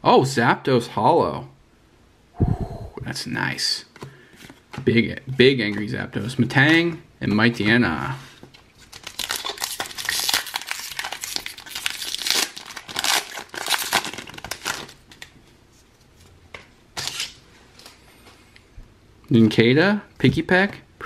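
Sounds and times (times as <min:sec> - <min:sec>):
foil wrapper crinkling and tearing: 0:08.8 - 0:15.4.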